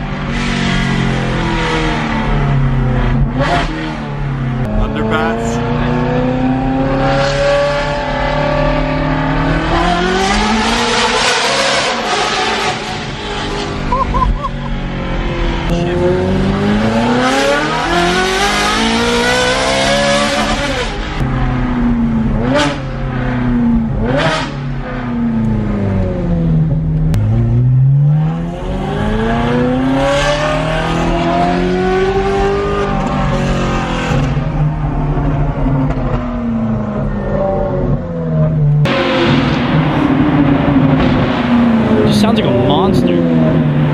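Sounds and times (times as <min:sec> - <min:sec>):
car engine revving: 0:00.0 - 0:43.9.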